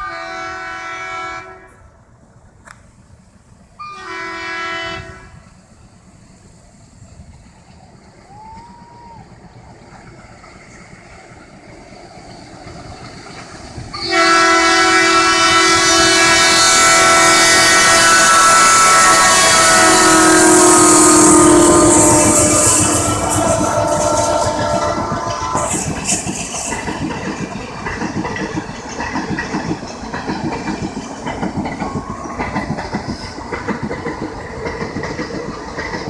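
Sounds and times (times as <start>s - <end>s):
locomotive air horn blasts: 0.0s - 1.9s, 3.8s - 5.4s, 14.0s - 25.9s
train running noise: 0.0s - 36.0s.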